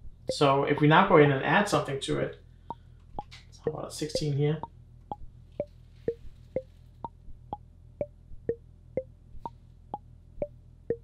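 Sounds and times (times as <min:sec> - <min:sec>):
marimba-like struck notes melody: 0:03.7 - 0:04.4.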